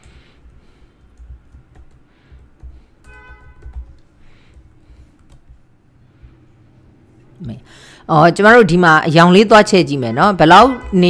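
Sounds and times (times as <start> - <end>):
computer keyboard typing: 0.0 - 5.7.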